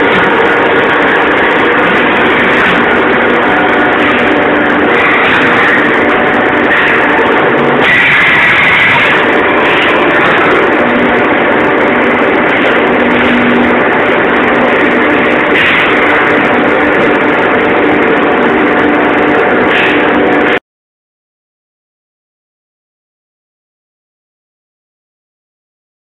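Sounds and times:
higher-pitched machine surges: 0:00.0 - 0:20.6
machine drone: 0:00.0 - 0:20.6.

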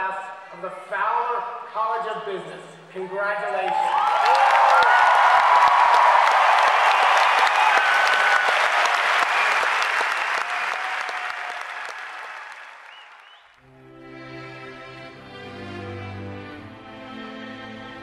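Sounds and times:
scattered cheers: 0:03.6 - 0:13.2
crowd applauding: 0:03.7 - 0:13.6
soft instrumental music: 0:13.6 - 0:18.0.

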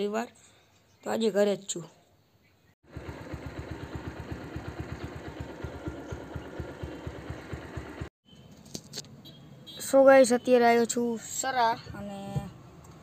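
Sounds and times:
engine idling: 0:02.8 - 0:08.1.

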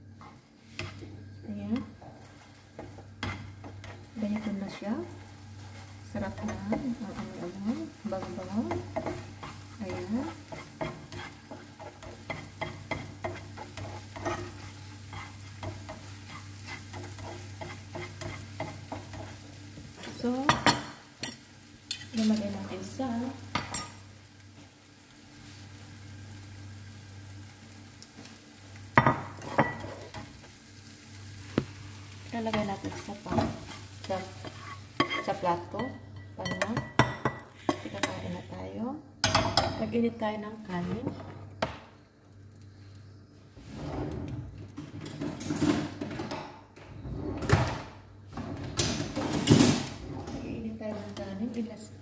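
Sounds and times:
faint steady sizzle: 0:00.0 - 0:52.0
spatula scraping frying pan: 0:00.1 - 0:22.5, 0:32.4 - 0:38.6.

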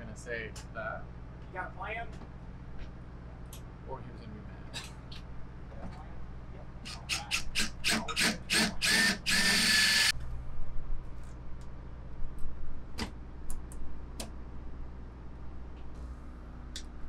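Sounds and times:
power drill whining in bursts: 0:07.1 - 0:10.1.

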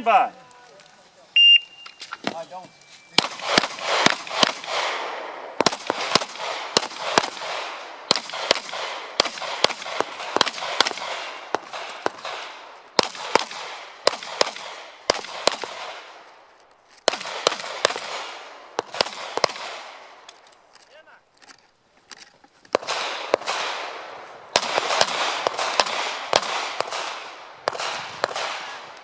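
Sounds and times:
pistol shots with echo: 0:03.2 - 0:16.2, 0:17.1 - 0:20.2, 0:22.8 - 0:29.0.

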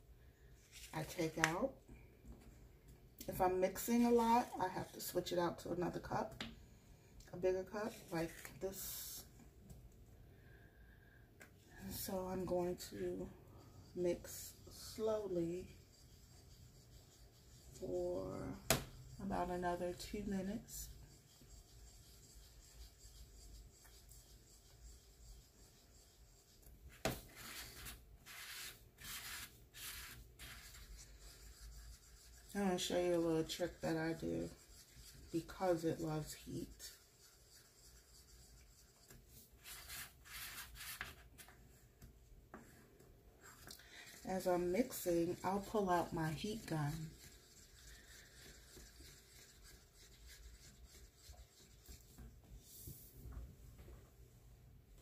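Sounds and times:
stir stick scraping in cup: 0:11.9 - 0:41.4, 0:43.4 - 0:53.0.

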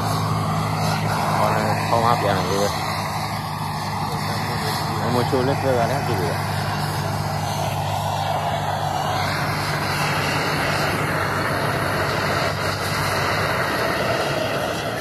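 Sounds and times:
propane torch hissing: 0:00.0 - 0:15.0.

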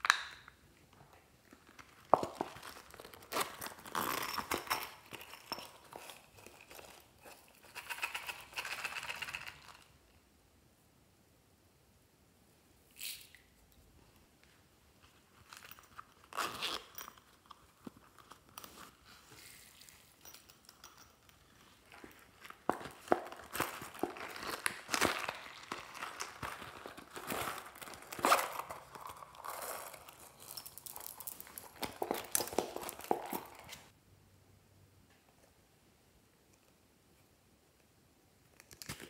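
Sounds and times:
plastic pouch crinkling: 0:22.3 - 0:33.9.

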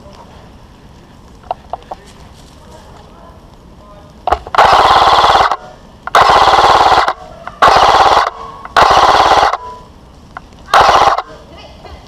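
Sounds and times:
airsoft rifle firing bursts: 0:04.3 - 0:09.8, 0:10.7 - 0:11.4.

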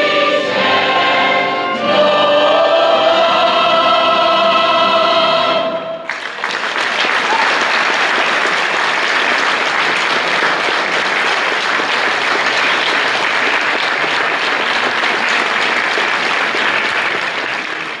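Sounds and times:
choir holding a chord: 0:00.0 - 0:06.1
audience applause: 0:06.1 - 0:18.0.

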